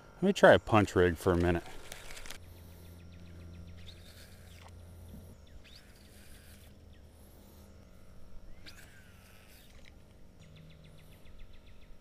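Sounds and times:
low steady hum: 0.0s - 12.0s
faint bird chirps: 2.4s - 12.0s.

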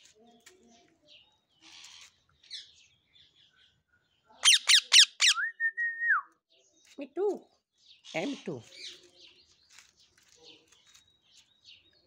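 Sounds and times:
parakeet chirping: 4.4s - 5.4s
parakeet screeching: 4.4s - 5.4s.

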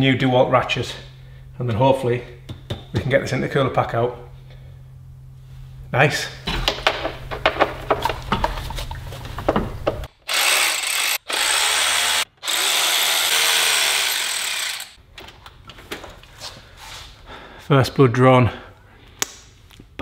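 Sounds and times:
tool handling clicks and knocks: 6.5s - 10.1s
cordless ratchet running: 10.2s - 15.0s.

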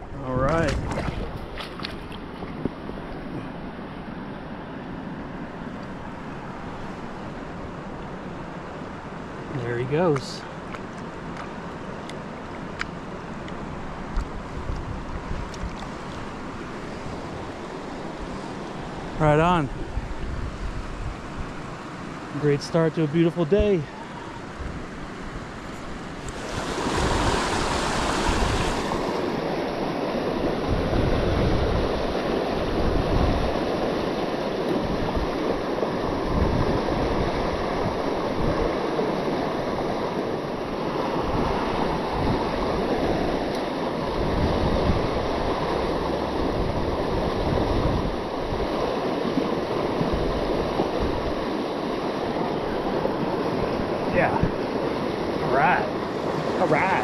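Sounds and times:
wind buffeting microphone: 0.0s - 3.7s, 13.7s - 22.4s, 23.5s - 56.7s
river water rushing over rocks: 0.3s - 57.0s.

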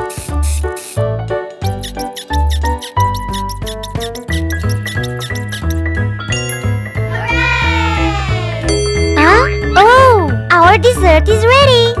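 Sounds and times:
high squeaky chirps: 1.7s - 5.9s.

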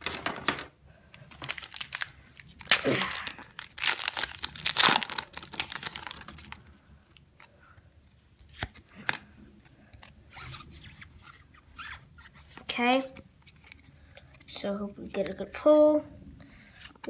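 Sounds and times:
foil wrapper tearing and crinkling: 1.2s - 6.6s.

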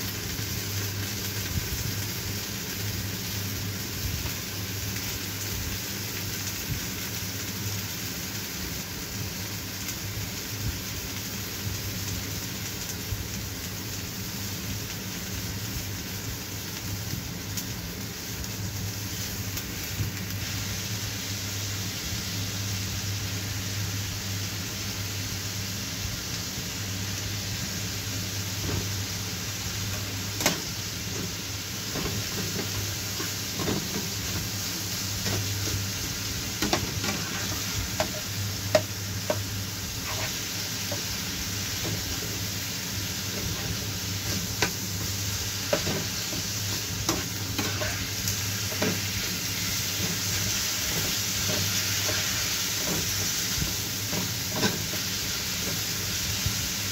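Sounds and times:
meat sizzling in a frying pan: 0.0s - 56.9s
steady low hum: 9.0s - 56.9s
spatula scraping pan: 36.6s - 39.4s, 40.0s - 41.1s, 45.7s - 48.1s.

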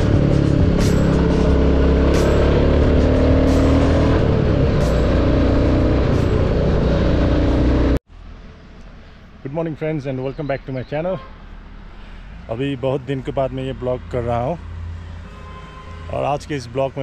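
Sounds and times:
background music: 0.0s - 8.0s
motorcycle engine running: 0.0s - 8.0s.

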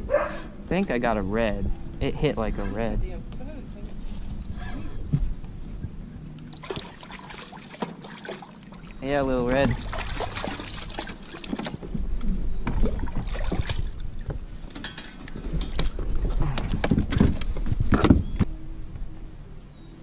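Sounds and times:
fish splashing in water: 6.4s - 9.0s, 9.6s - 11.9s, 12.7s - 14.3s.

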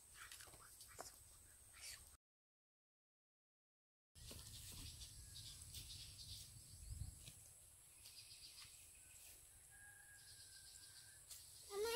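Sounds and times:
birds chirping: 4.2s - 11.9s.

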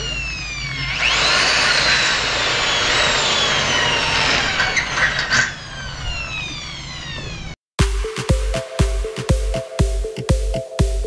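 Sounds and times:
electric hammer drill whining: 0.0s - 7.6s.

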